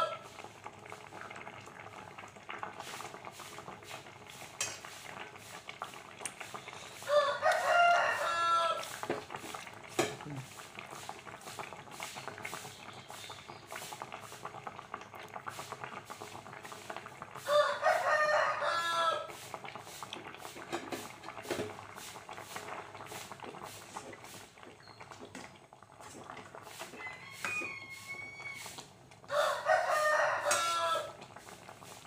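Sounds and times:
rooster crowing: 0.0 - 0.2, 7.0 - 9.0, 17.4 - 19.3, 26.9 - 31.2
stew simmering in a pot: 0.0 - 32.0.

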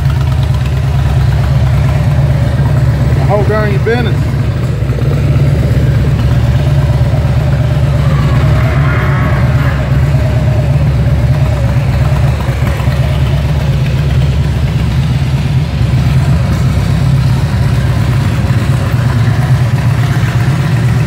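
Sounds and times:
motorcycle engine idling loudly: 0.0 - 21.0.

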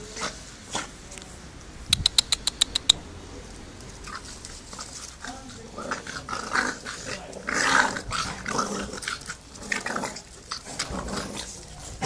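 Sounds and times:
puppies growling: 4.0 - 12.0.

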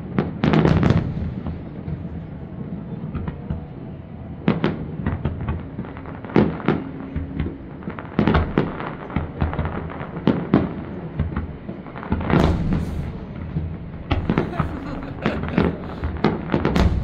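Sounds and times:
fireworks bursting: 0.0 - 3.8, 4.4 - 17.0
fireworks crackle: 4.5 - 17.0.

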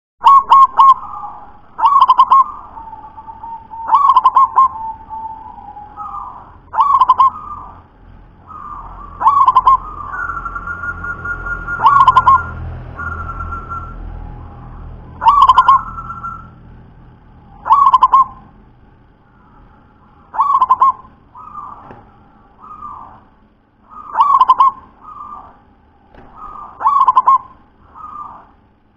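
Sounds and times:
dove cooing in staccato notes: 0.2 - 7.9, 8.5 - 14.0, 15.2 - 16.5, 17.6 - 18.6, 20.3 - 23.2, 23.9 - 28.6.

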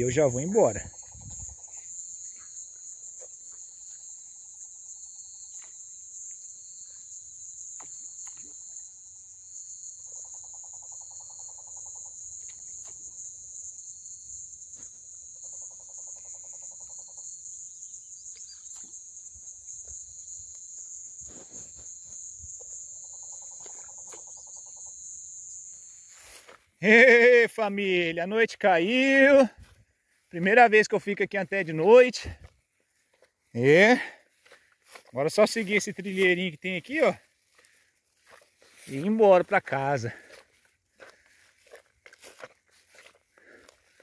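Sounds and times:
high-pitched insect trilling: 0.0 - 44.0
low rapid insect trill: 0.0 - 44.0.

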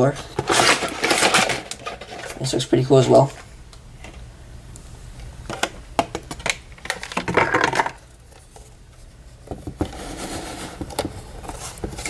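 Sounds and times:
scrape or rustle: 8.4 - 12.0.

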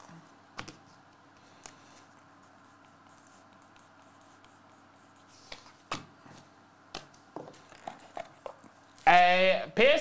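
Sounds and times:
pen scratching on paper: 2.4 - 5.5.

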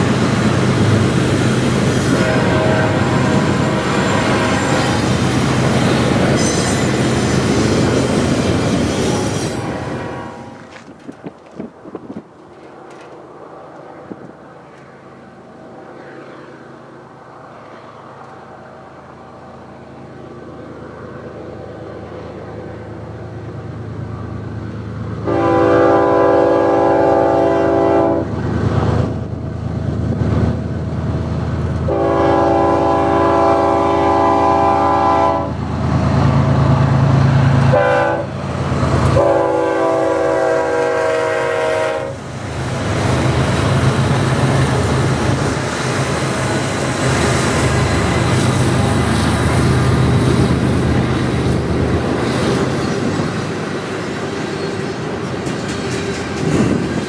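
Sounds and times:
diesel locomotive engines: 0.0 - 57.0
rail cars clattering: 0.0 - 57.0
train air horn blasts: 2.0 - 5.2, 9.0 - 10.7, 25.2 - 28.3, 31.9 - 35.6, 37.7 - 38.4, 39.1 - 42.2.

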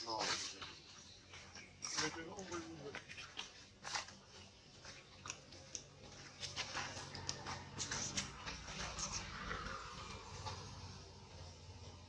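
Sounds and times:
monkey chewing food: 3.0 - 10.6.

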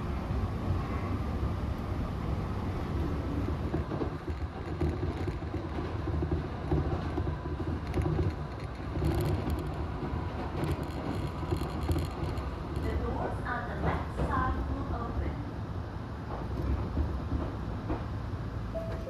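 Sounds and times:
train wheels rumbling on rails: 0.0 - 19.0
light clicks and rattles: 3.4 - 14.4.

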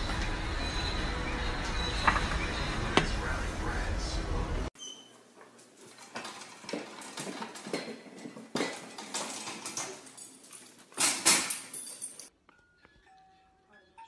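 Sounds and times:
metal pet gate rattling: 8.5 - 12.2.

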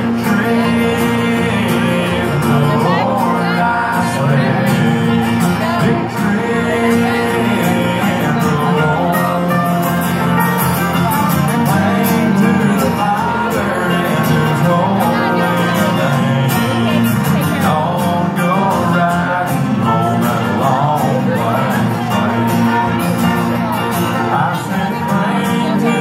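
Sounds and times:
live country band: 0.0 - 26.0
person singing: 0.0 - 26.0.

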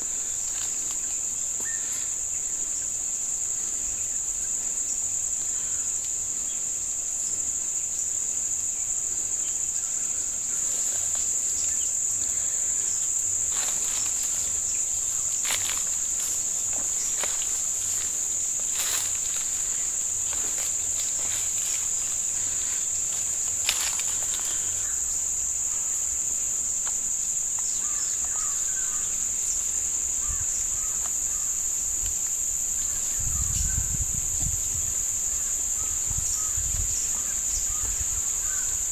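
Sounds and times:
insect chorus drone: 0.0 - 38.9
twigs snapping and brushing: 15.4 - 22.1, 23.1 - 24.6.

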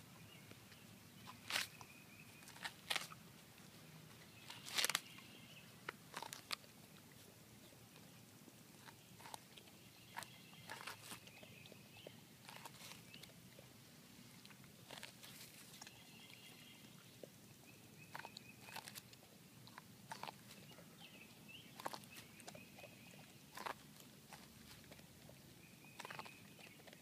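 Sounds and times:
puppy chewing corn husks: 0.0 - 27.0.

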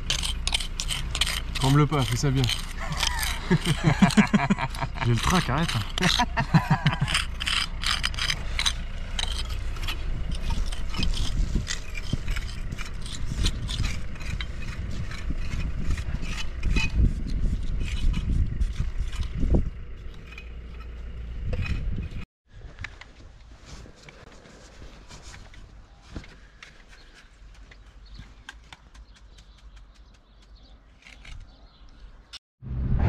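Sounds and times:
trowels scraping mortar: 0.0 - 22.2, 27.0 - 32.3
wind rumble on microphone: 9.4 - 20.4, 21.0 - 23.0, 32.6 - 33.0.

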